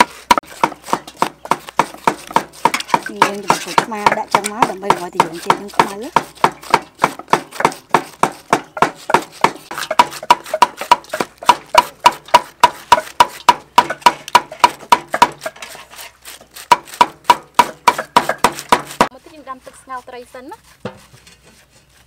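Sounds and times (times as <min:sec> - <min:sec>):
peeler scraping vegetables: 0:00.0 - 0:22.0.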